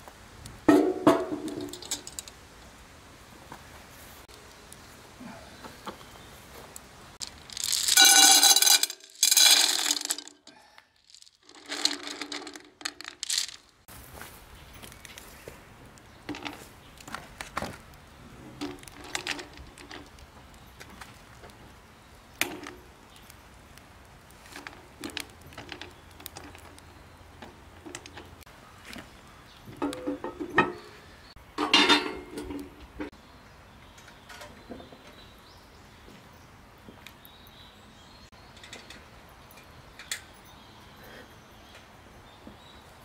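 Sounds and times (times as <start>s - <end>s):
stones knocking and clinking: 7.2s - 13.8s.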